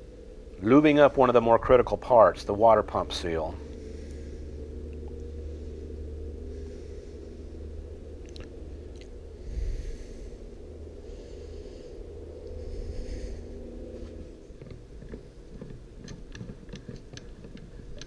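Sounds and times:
steady low hum: 0:00.0 - 0:18.0
person breathing: 0:03.6 - 0:08.2, 0:09.2 - 0:14.5.

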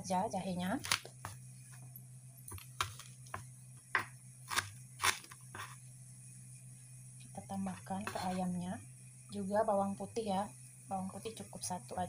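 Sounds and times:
knife crushing ginger on board: 0:00.8 - 0:01.5, 0:02.5 - 0:05.8.

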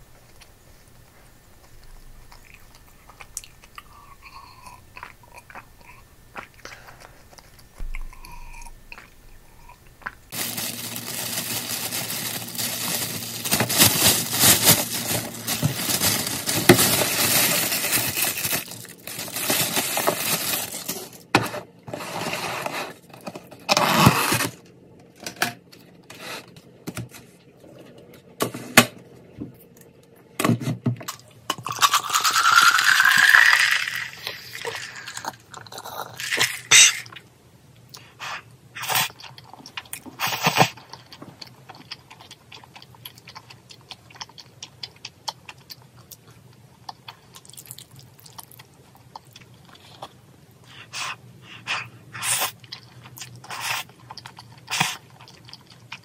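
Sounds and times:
faint chewing: 0:00.0 - 0:10.7, 0:37.8 - 0:56.0
plastic bag crinkling: 0:10.0 - 0:21.3, 0:31.7 - 0:37.0.

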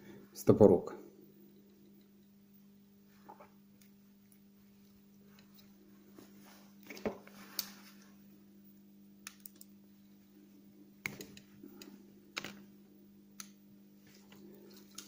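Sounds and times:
steady low hum: 0:00.0 - 0:15.0
sharp irregular clicks: 0:13.4 - 0:13.6.

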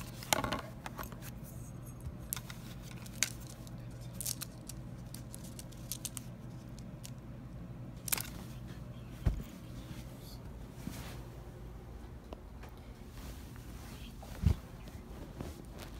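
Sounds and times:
faint low hum: 0:00.0 - 0:15.9
rustling on fabric: 0:09.2 - 0:11.6, 0:13.0 - 0:15.9.

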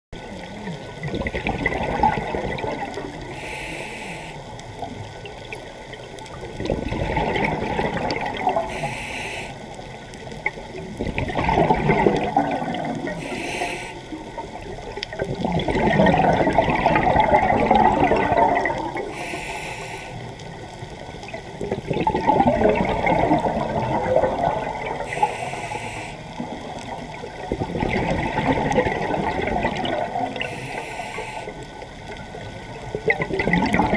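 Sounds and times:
exhaled bubbles gurgling: 0:00.2 - 0:33.9
regulator inhale hiss: 0:03.2 - 0:04.6, 0:08.6 - 0:09.9, 0:13.1 - 0:14.2, 0:19.0 - 0:20.5, 0:25.0 - 0:26.5, 0:30.3 - 0:31.8.

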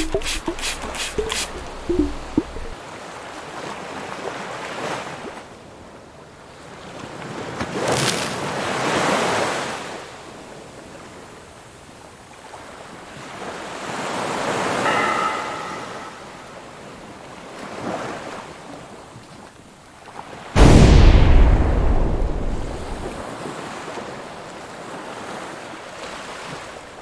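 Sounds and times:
brief pitched sound: 0:00.0 - 0:02.8, 0:14.9 - 0:16.5
ocean waves washing in: 0:00.0 - 0:03.8, 0:13.3 - 0:18.8, 0:20.2 - 0:27.0.

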